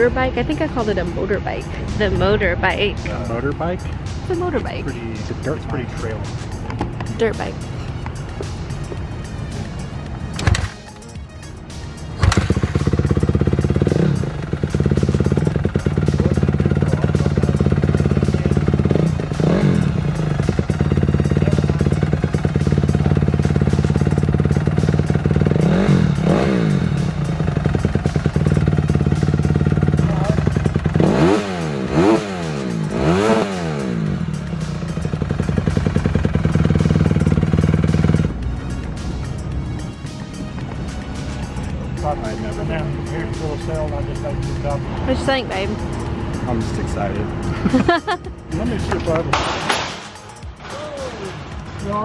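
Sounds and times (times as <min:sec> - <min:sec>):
motorcycle engine idling and revving: 0:00.0 - 0:52.0.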